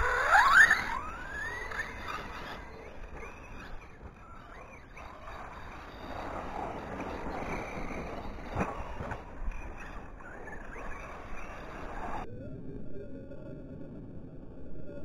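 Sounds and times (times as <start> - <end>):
model cars whining: 0.0 - 12.3.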